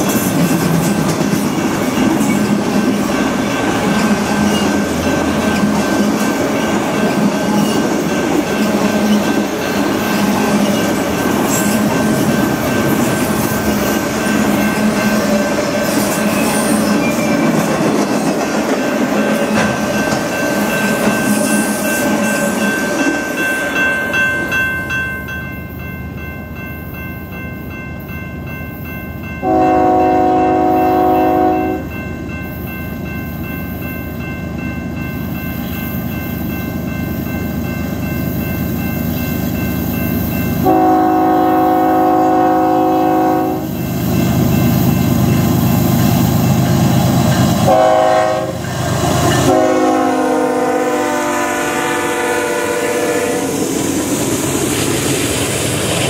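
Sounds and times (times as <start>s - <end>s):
train wheels on rails: 0.0s - 56.0s
locomotive air horn blast: 29.4s - 31.9s, 40.6s - 43.7s, 47.7s - 48.6s, 49.5s - 53.6s.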